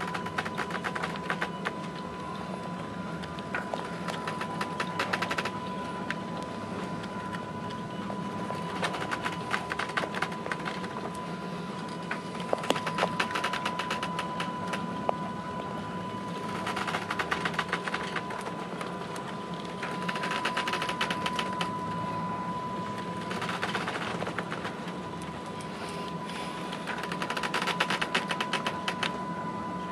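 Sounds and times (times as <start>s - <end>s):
low ship hum: 0.0s - 29.9s
high-pitched tone: 19.4s - 24.0s.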